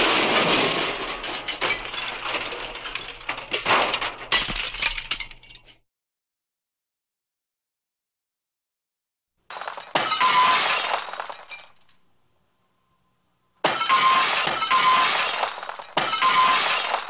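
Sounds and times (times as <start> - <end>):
glass breaking crash: 0.0 - 5.8, 9.5 - 11.9, 13.6 - 17.0.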